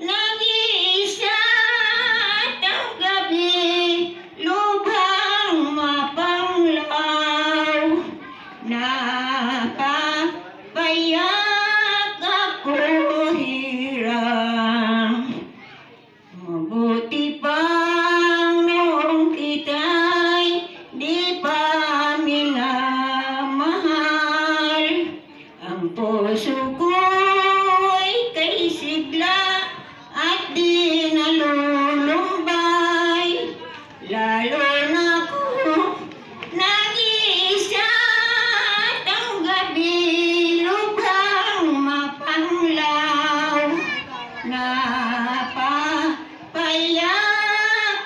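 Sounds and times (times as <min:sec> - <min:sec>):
elderly woman singing: 0:00.0 - 0:15.5, 0:16.4 - 0:48.0.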